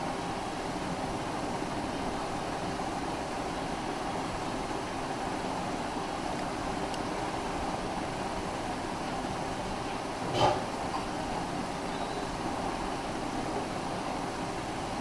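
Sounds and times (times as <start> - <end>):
aquarium filter humming: 0.0 - 15.0
water noise: 0.0 - 15.0.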